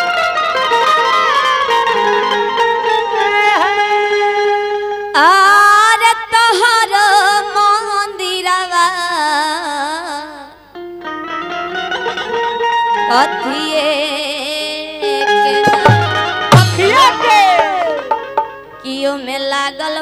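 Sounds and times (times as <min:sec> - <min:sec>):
instrumental accompaniment: 0:00.0 - 0:08.2, 0:10.4 - 0:19.4
woman singing ornamented melody: 0:05.2 - 0:10.6, 0:13.1 - 0:15.9, 0:18.8 - 0:20.0.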